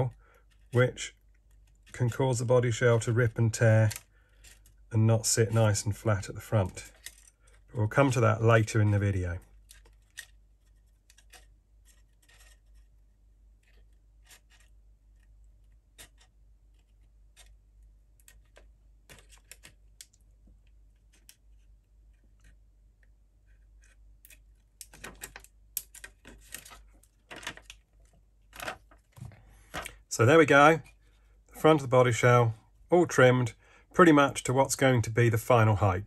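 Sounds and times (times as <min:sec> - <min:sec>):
scissors cutting plastic: 0:09.6 - 0:12.8.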